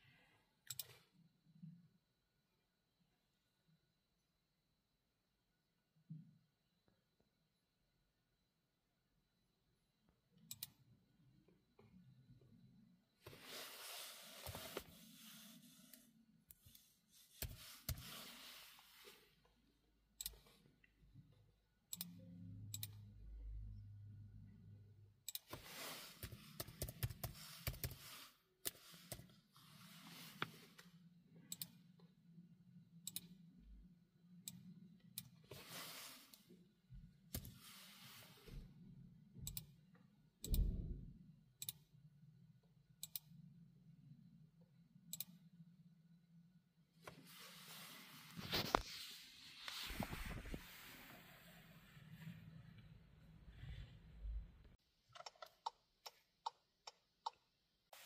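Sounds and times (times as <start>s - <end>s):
laptop keyboard typing: 26.2s - 29.3s, 55.1s - 57.4s.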